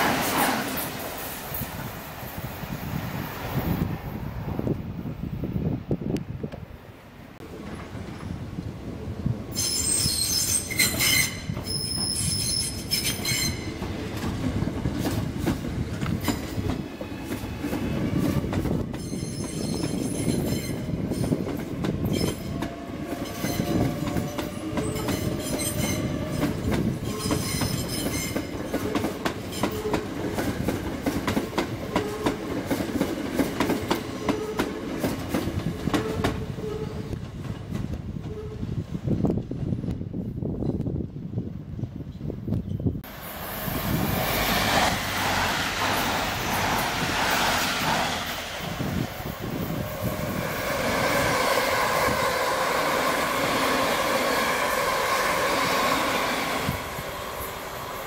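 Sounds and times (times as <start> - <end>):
high-pitched wheel squeal: 9.6 - 13.7, 23.2 - 26.4.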